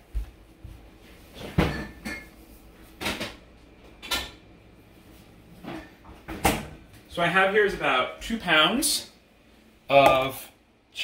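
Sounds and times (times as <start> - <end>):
refrigerator door opening and shutting: 5.6 - 6.8.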